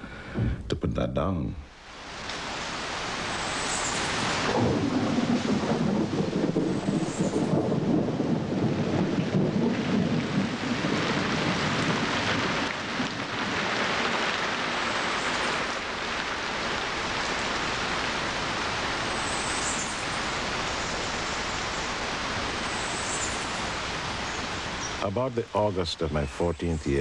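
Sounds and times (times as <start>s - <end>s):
heavy rain falling: 1.8s - 27.0s
low rumble of thunder: 4.4s - 14.9s.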